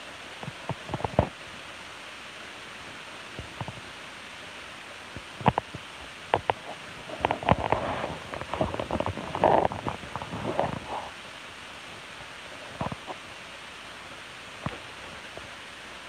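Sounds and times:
steady hiss: 0.0s - 16.0s
animals crunching seeds: 6.3s - 11.2s.

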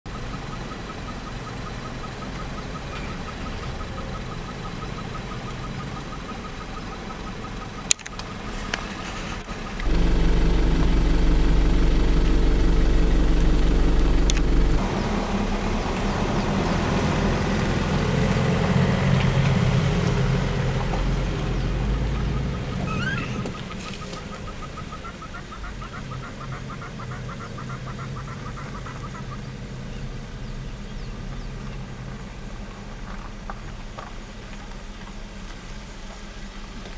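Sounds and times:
rapid repeated chirping: 0.1s - 8.5s
vehicle engine humming: 0.1s - 36.9s.

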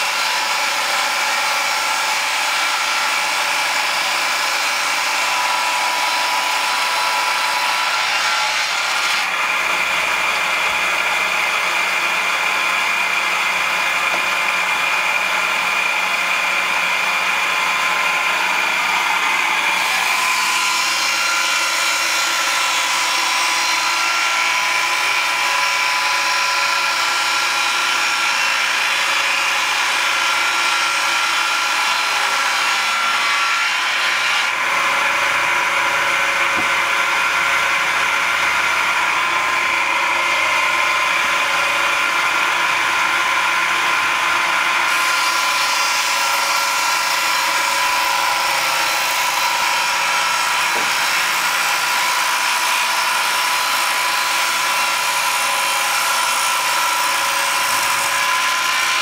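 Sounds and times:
saw blades whining: 0.0s - 59.0s
saw cutting wood: 0.0s - 59.0s.

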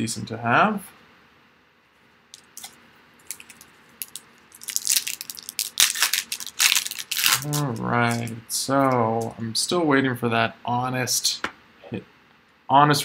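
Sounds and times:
foil wrapper crinkling and tearing: 2.4s - 8.3s.

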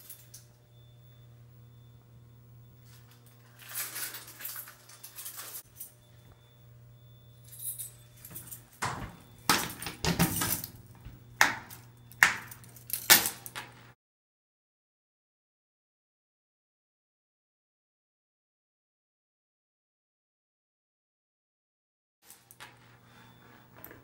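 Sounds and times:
keys jangling: 0.0s - 0.5s, 2.9s - 6.0s, 7.4s - 11.0s, 11.7s - 13.7s
steady low hum: 0.0s - 14.0s.

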